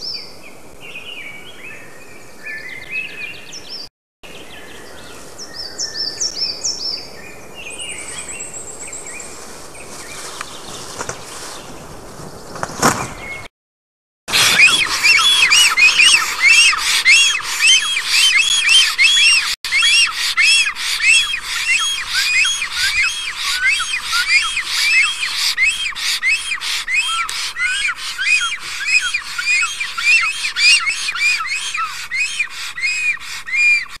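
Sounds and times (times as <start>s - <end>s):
storks calling: 14.3s - 34.0s.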